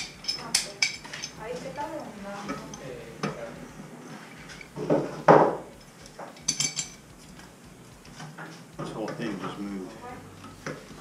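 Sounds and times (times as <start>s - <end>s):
metal hand tools clinking: 0.0s - 1.4s, 5.8s - 7.1s.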